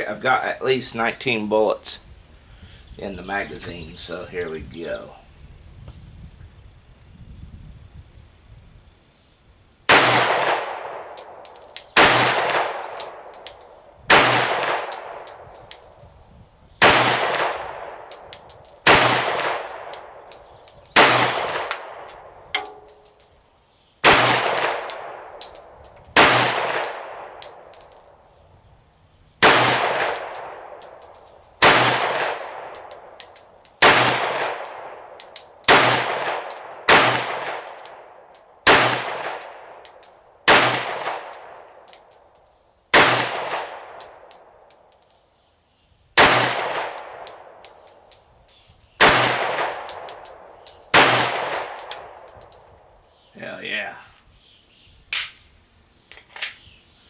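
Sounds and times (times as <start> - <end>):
pistol shots echoing: 9.9 - 15.8, 16.8 - 20.4, 21.0 - 23.2, 24.0 - 28.0, 29.4 - 42.2, 42.9 - 44.6, 46.2 - 47.8, 49.0 - 52.4.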